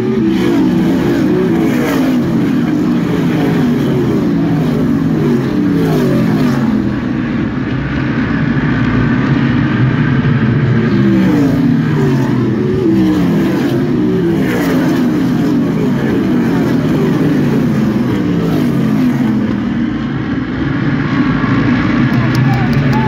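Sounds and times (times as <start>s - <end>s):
racing car engines: 0.0s - 23.0s.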